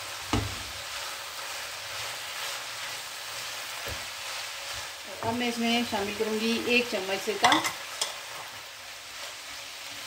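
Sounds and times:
wooden spatula stirring: 0.0s - 6.8s
filling sizzling in a frying pan: 0.0s - 10.0s.

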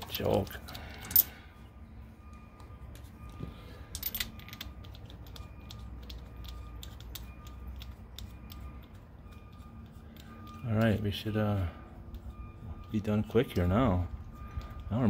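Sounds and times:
hand tools clicking and clattering: 0.0s - 1.4s, 3.9s - 5.3s.

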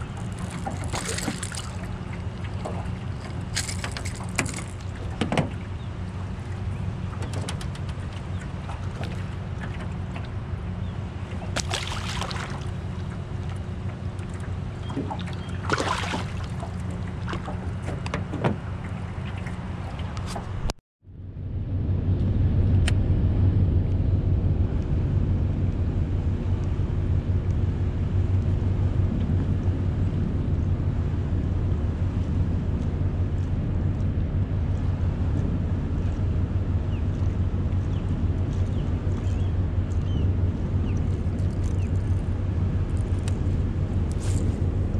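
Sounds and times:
river water flowing: 0.0s - 6.8s, 8.4s - 17.9s
wind rumble on microphone: 0.0s - 44.9s.

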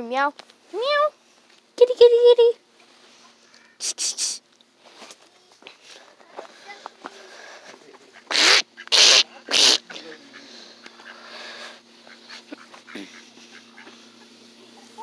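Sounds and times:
animal giving harsh calls: 8.1s - 11.3s.

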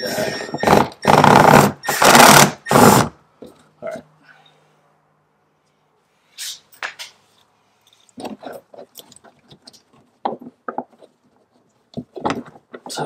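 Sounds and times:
clicks and scrapes of small parts: 6.4s - 13.0s.

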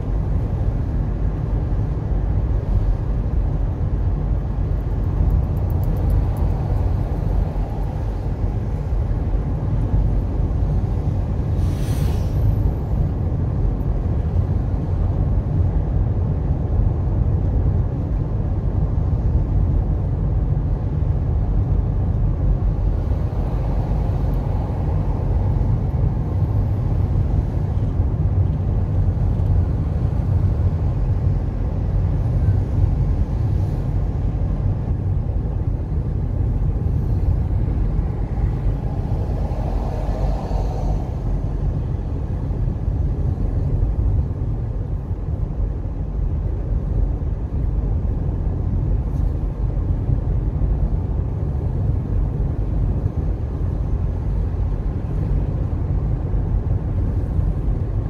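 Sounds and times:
car cabin road rumble: 0.0s - 58.0s.

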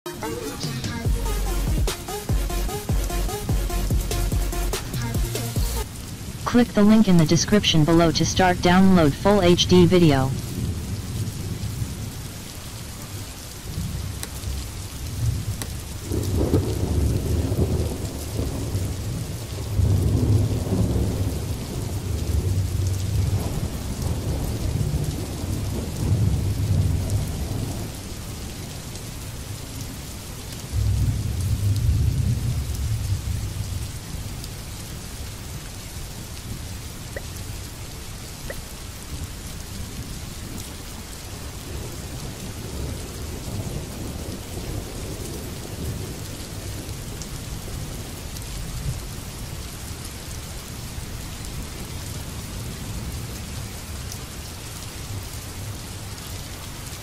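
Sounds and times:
low thunder rolls: 16.1s - 19.0s.

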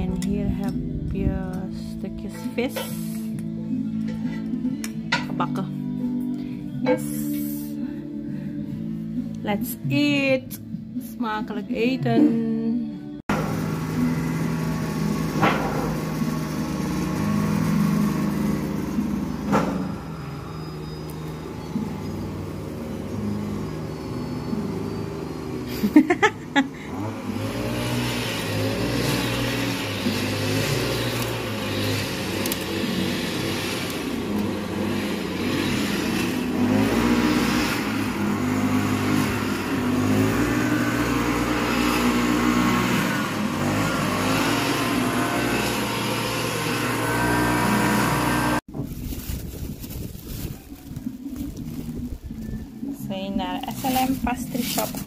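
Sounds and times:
brush cutter revving: 13.3s - 20.4s, 21.0s - 48.6s.

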